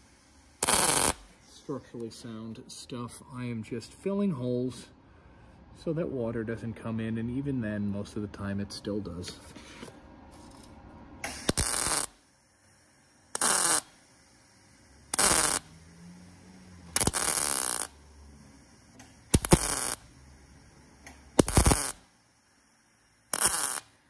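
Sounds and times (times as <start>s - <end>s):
welder arc bursts: 0.0s - 2.7s, 10.4s - 24.0s.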